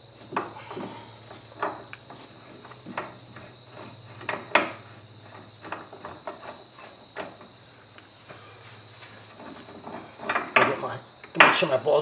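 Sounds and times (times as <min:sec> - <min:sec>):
metal tools clinking and knocking: 0:09.4 - 0:11.7.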